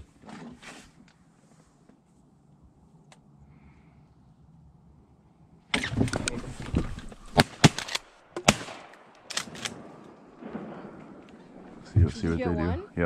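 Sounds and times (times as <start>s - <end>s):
shotgun blasts: 7.2s - 11.2s.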